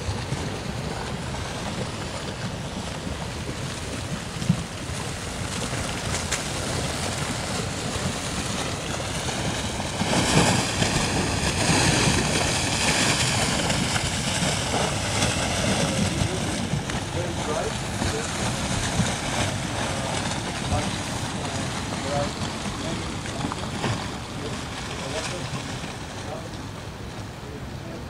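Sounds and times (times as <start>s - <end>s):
floodwater rushing: 0.0s - 28.0s
wind on microphone: 0.0s - 28.0s.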